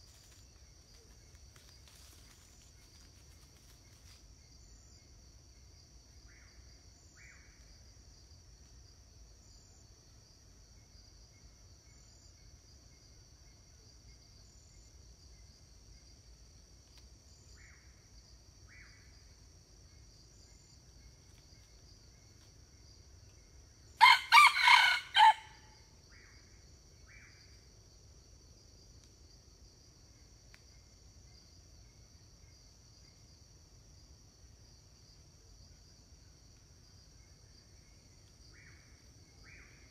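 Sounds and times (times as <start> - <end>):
high insect whine: 0.0 - 39.9
rooster crowing: 24.0 - 25.7.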